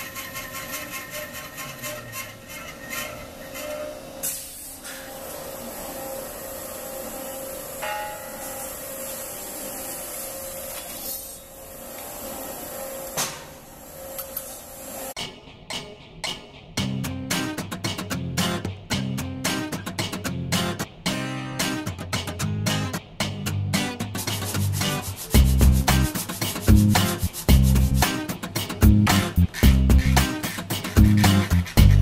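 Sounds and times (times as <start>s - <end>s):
bandsaw cutting metal: 0.0s - 15.2s, 24.2s - 32.0s.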